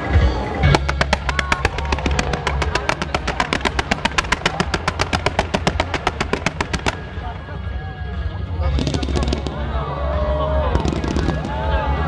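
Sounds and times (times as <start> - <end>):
fireworks cracking: 0.7 - 7.4, 8.6 - 9.9, 10.6 - 12.0.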